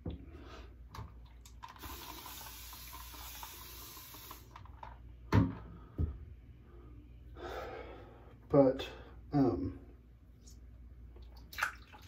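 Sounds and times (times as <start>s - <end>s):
sink tap running: 1.4s - 4.6s.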